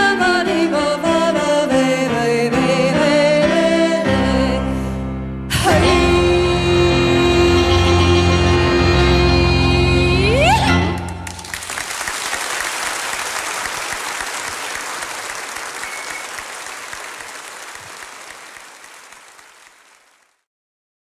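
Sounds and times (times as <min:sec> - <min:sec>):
audience applauding: 0:11.0 - 0:20.5.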